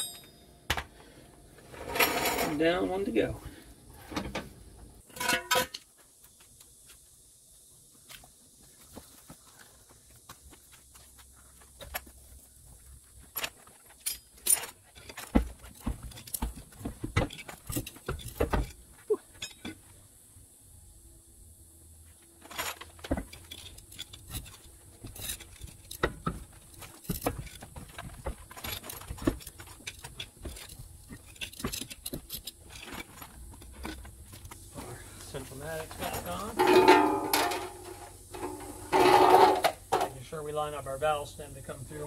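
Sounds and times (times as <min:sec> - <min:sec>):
metallic clinks and knocks of wheel: 0:00.0 - 0:00.5, 0:36.0 - 0:40.2.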